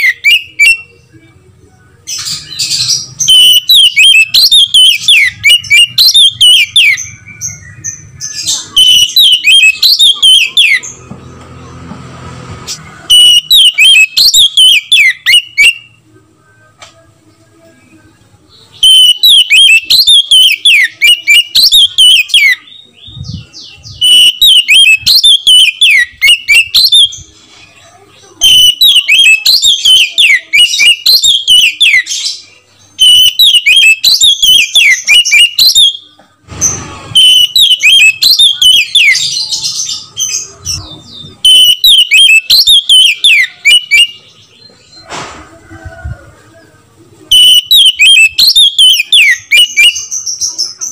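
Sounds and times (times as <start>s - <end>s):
bird singing whistled phrases: 2.2s - 7.8s, 8.4s - 10.8s, 13.0s - 16.0s, 18.8s - 27.2s, 28.4s - 32.4s, 33.0s - 36.0s, 37.2s - 40.0s, 41.4s - 44.3s, 47.3s - 50.8s.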